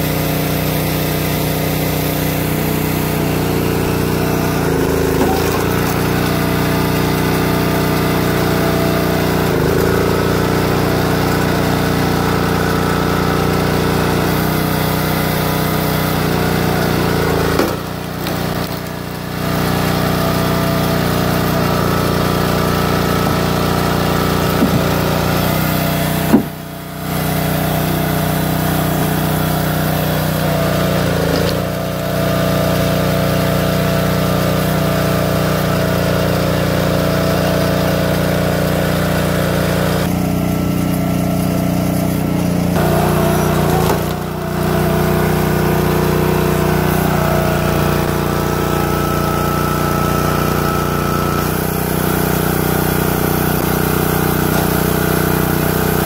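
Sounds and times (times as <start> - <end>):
small gas engine running: 0.0 - 56.0
sharp knock: 26.3 - 26.6.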